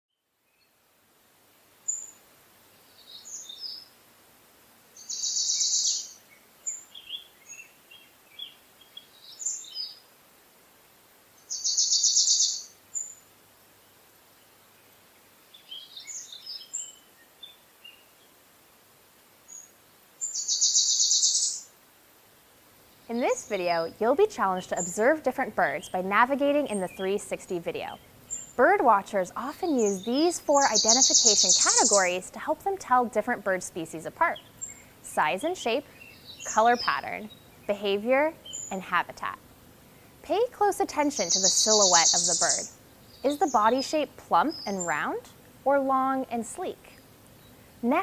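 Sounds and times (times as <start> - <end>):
bird chirps: 5.0 - 10.0, 11.4 - 13.2, 19.5 - 21.7, 29.7 - 32.2, 35.8 - 38.9, 41.0 - 45.2
bird high fast trill: 29.7 - 32.2, 41.0 - 44.0.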